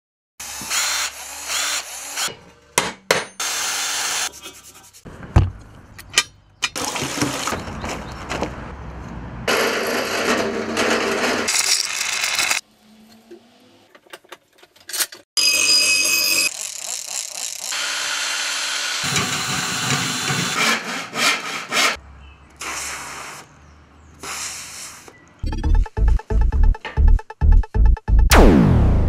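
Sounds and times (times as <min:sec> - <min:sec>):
power tool running: 0:00.4 - 0:02.3, 0:16.3 - 0:20.5.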